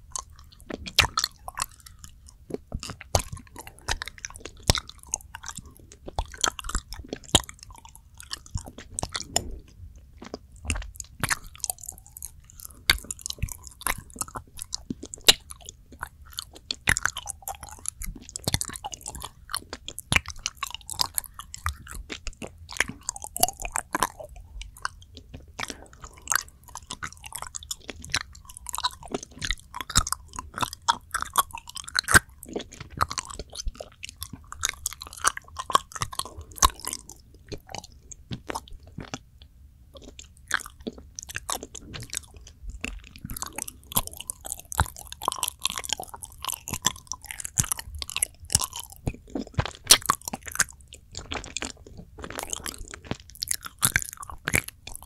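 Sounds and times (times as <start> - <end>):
wet mouth clicks chewing: 0.0 - 55.0.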